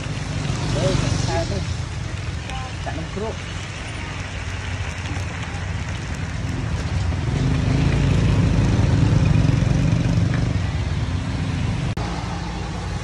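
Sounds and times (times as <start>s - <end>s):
batter sizzling in a pan: 0.0s - 8.4s
vehicle engine rumbling: 0.0s - 13.0s.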